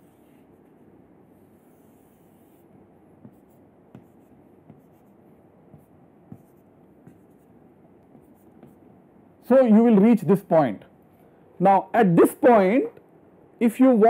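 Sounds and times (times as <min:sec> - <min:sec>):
chalk scratching on blackboard: 0:00.0 - 0:00.8, 0:01.4 - 0:08.8
chalk tapping on board: 0:02.6 - 0:08.9.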